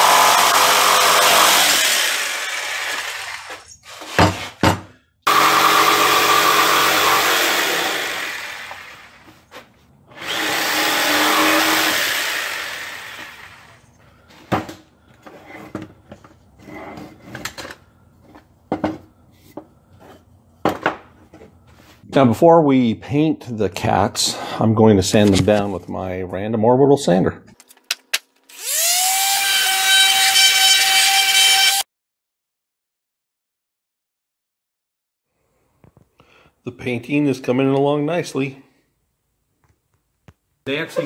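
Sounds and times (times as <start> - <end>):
jigsaw cutting wood: 0.0 - 4.6, 5.3 - 9.3, 10.1 - 13.8, 28.5 - 31.9
wood pieces knocking: 3.5 - 5.0.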